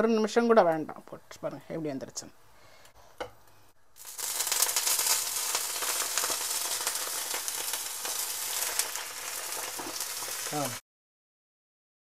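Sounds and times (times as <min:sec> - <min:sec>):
milk sizzling in a frying pan: 0:04.0 - 0:10.8.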